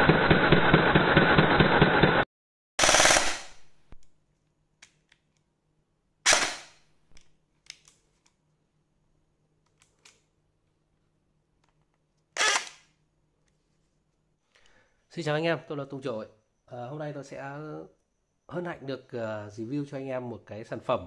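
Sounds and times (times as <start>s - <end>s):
loud gunfire bursts: 2.8s - 3.6s.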